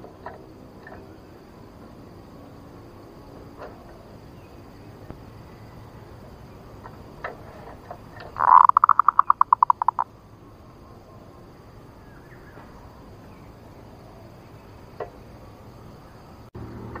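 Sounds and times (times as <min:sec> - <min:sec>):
dove cooing call: 0:08.2 - 0:10.0.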